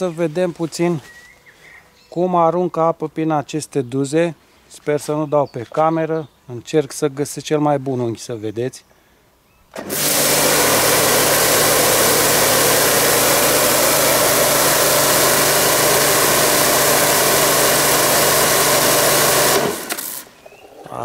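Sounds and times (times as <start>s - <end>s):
pressure washer motor humming: 9.7s - 20.4s
water jet hissing: 9.8s - 20.4s.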